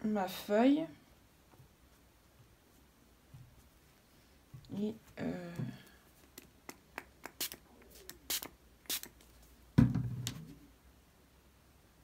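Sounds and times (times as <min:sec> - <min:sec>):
cloth dabbing wet paper: 0:01.8 - 0:09.6
thump: 0:09.8 - 0:10.5.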